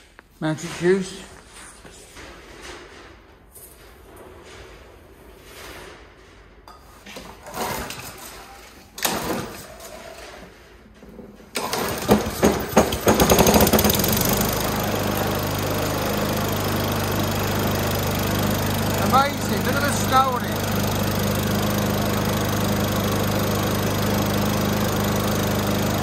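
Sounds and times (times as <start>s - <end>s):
lawn mower engine starting and running: 11.5s - 26.0s.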